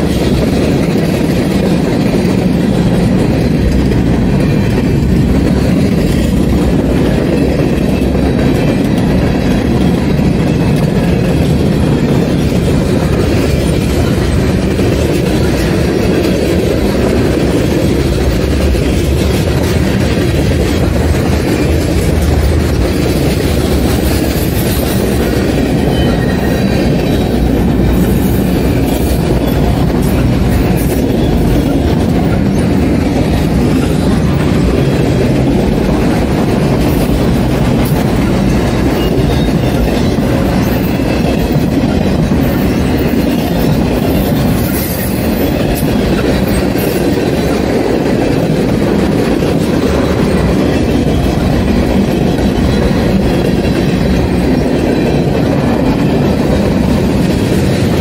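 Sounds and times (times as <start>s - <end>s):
freight train wheels clattering: 0.0s - 58.0s.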